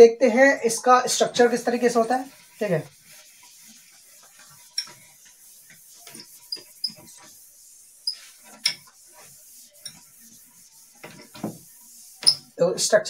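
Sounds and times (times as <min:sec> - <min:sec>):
cloth wiping whiteboard: 0:00.2 - 0:12.9
high squeaks of cloth: 0:06.0 - 0:07.3.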